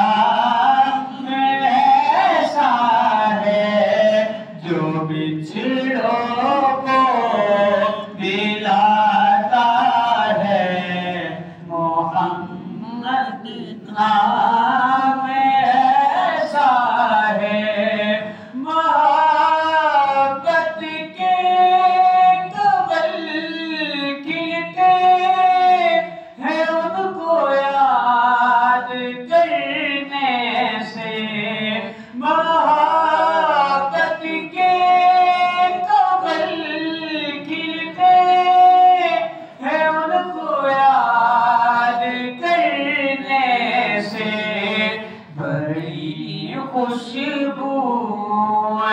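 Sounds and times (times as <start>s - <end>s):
man singing unaccompanied: 0.0s - 48.9s
singer breathing: 18.3s - 18.6s, 26.1s - 26.4s, 31.9s - 32.2s, 39.3s - 39.6s.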